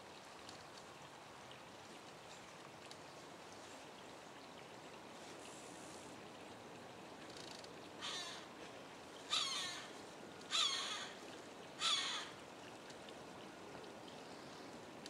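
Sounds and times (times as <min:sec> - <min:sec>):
crow cawing: 0:08.0 - 0:08.5, 0:09.3 - 0:09.9, 0:10.5 - 0:11.2, 0:11.8 - 0:12.4.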